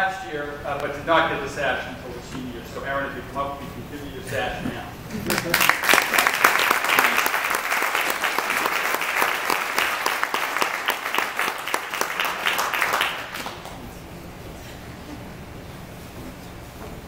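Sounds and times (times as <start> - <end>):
audience applauding: 5.3 - 14.0.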